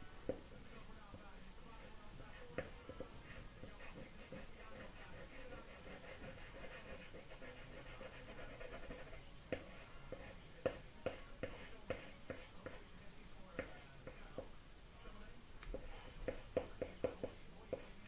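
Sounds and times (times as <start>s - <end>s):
faint steady hum: 0.0s - 18.0s
charcoal tapping on paper: 15.7s - 17.9s.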